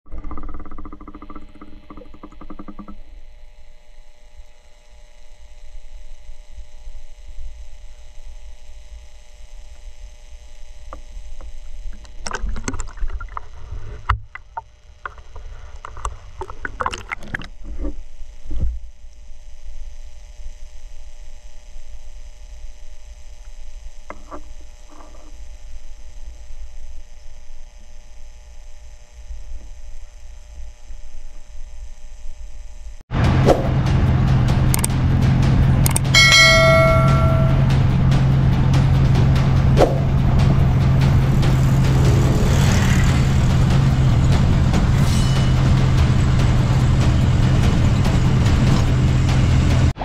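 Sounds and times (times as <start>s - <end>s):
faint steady hum: 0.1s - 33.1s
water splashing and sloshing: 12.0s - 14.6s, 16.4s - 17.8s.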